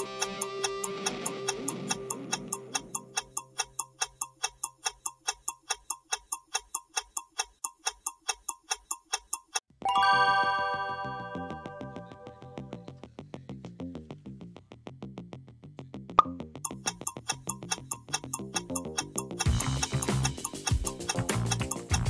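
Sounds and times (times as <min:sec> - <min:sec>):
clock ticking countdown: 0:00.0 - 0:12.9, 0:16.2 - 0:22.0
electronic chime chord: 0:09.9 - 0:12.7
background music: 0:09.9 - 0:13.0, 0:19.2 - 0:22.0.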